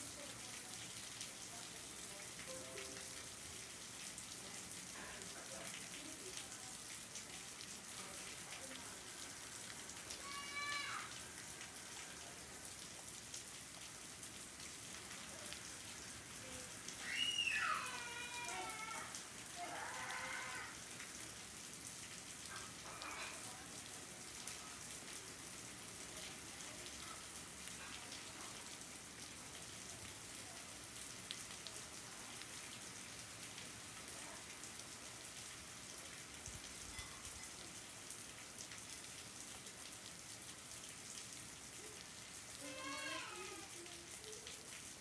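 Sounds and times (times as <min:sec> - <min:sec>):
raindrops ticking on surfaces: 0:00.0 - 0:45.0
steady rain falling: 0:00.0 - 0:45.0.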